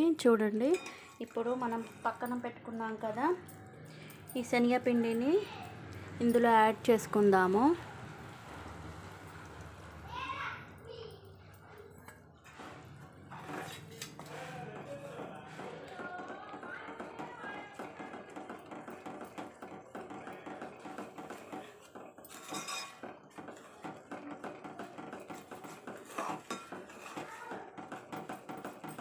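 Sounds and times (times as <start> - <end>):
spoon scraping metal pan: 0.5 - 3.1, 12.5 - 14.8, 18.1 - 28.2.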